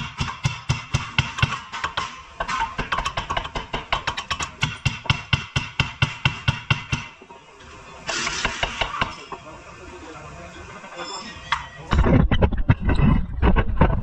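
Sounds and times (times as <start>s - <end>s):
hammer striking metal: 0.0s - 7.2s.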